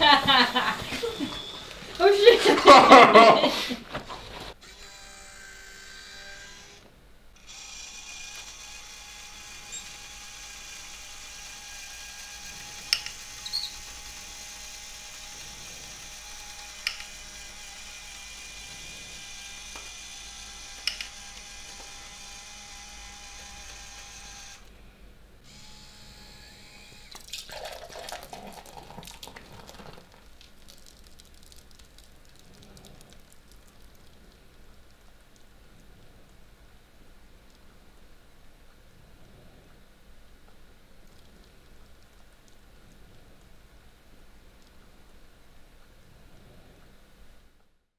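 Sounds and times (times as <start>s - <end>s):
small electric motor whining: 4.6s - 24.7s, 25.4s - 27.2s
sharp clicks: 16.8s - 17.2s, 20.8s - 21.8s
beer pouring into glass: 27.2s - 34.1s.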